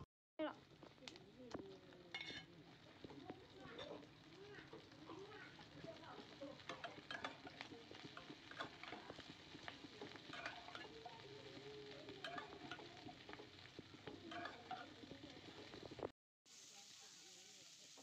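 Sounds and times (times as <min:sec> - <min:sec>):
food sizzling: 0:00.0 - 0:18.0
metal spatula scraping a wok: 0:02.1 - 0:16.1.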